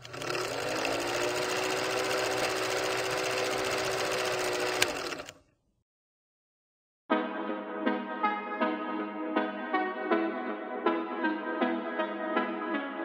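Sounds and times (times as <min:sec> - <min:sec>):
film projector clatter: 0:00.0 - 0:05.4
motor hum: 0:00.0 - 0:05.4.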